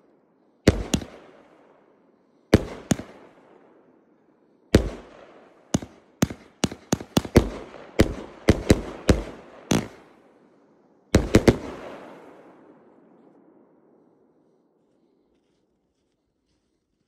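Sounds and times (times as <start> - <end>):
fireworks bangs echoing: 0.7 - 1.7, 2.5 - 3.7, 4.8 - 10.3, 11.1 - 12.8.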